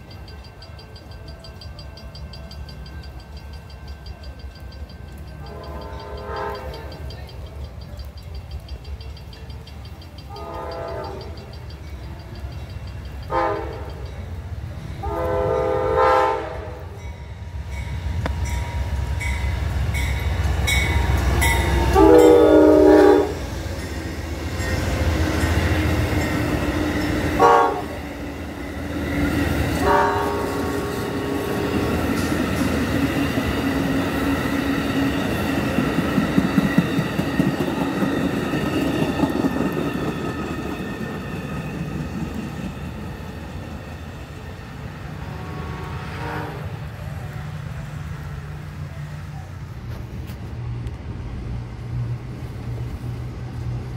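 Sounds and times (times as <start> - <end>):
diesel locomotive rumble: 0.0 - 53.9
locomotive horn: 5.4 - 7.0, 10.3 - 11.4, 13.2 - 14.2, 15.0 - 17.0, 21.0 - 23.6, 27.2 - 28.1, 29.5 - 32.3, 45.0 - 47.2
train wheels clattering: 17.6 - 44.9.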